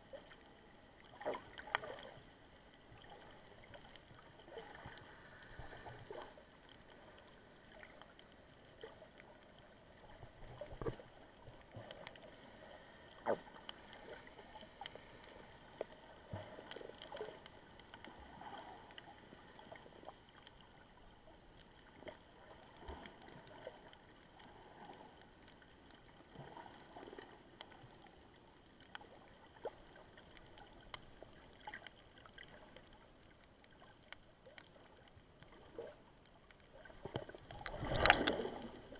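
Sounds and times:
underwater water movement: 0:00.0 - 0:38.9
underwater clicks and knocks: 0:10.3 - 0:12.2, 0:36.8 - 0:38.9.

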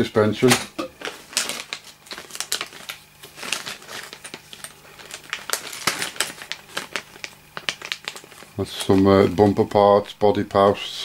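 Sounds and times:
plastic bags crinkling: 0:00.4 - 0:09.8.

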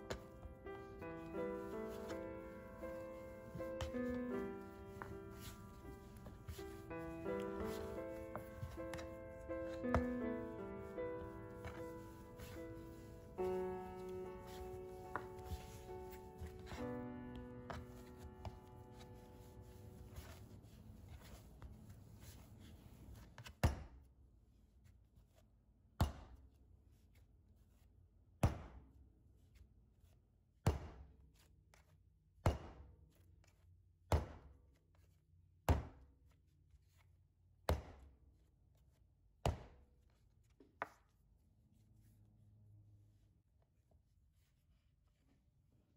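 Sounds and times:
dough slapped on worktop: 0:32.4 - 0:32.8, 0:34.1 - 0:34.5, 0:37.7 - 0:38.0.

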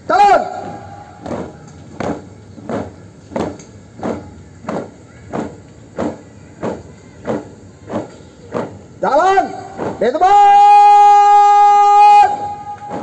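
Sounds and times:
marching boots stamping in unison: 0:01.2 - 0:10.2, 0:12.8 - 0:13.0.

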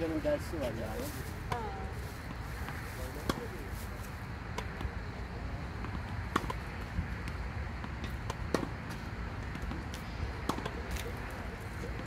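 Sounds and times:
tennis ball hit by rackets: 0:02.6 - 0:03.5, 0:04.5 - 0:05.0, 0:05.8 - 0:11.2.

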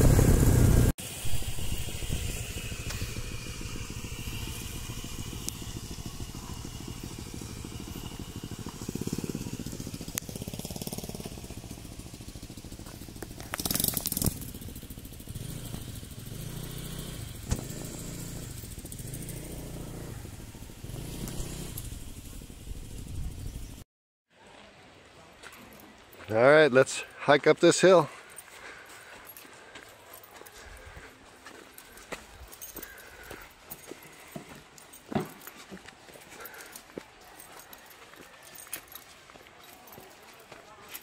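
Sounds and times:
motorcycle engine idling: 0:00.0 - 0:23.8, 0:28.2 - 0:40.5.

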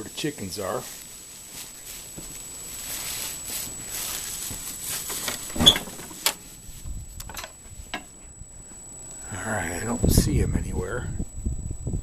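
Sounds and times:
rustling movement: 0:00.0 - 0:08.9
hinge squeak: 0:05.5 - 0:06.0.

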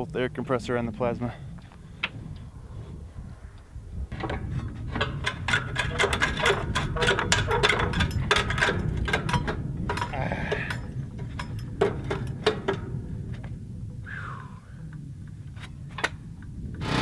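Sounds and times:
steady low rumble: 0:00.0 - 0:17.0
metallic clicks and knocks: 0:04.1 - 0:13.6, 0:14.9 - 0:16.5.

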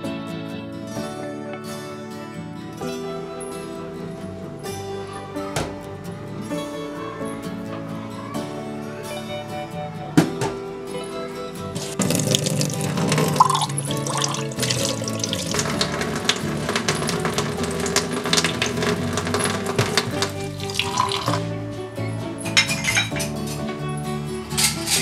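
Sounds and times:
background music: 0:00.0 - 0:25.0
tap water running into sink: 0:11.8 - 0:21.5
cutlery and glassware clinking: 0:22.5 - 0:23.6, 0:24.5 - 0:25.0.

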